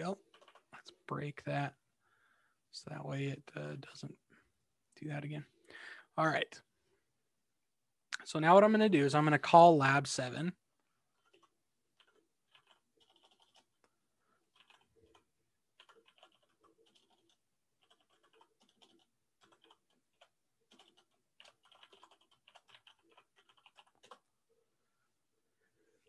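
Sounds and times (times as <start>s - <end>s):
computer keyboard typing: 0.2s - 0.7s, 11.2s - 24.3s.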